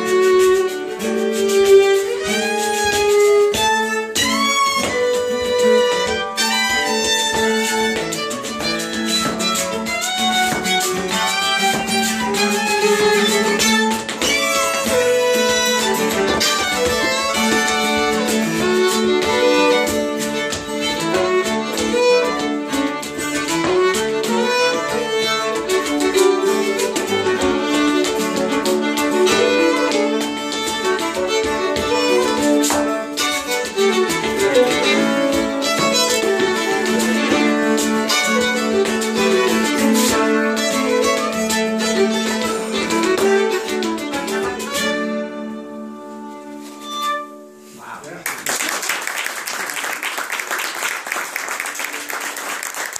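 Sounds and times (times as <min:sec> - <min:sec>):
dancer's shoes tapping: 0:00.0 - 0:47.3
fiddles playing folk tune: 0:00.0 - 0:48.0
acoustic guitar: 0:00.0 - 0:48.2.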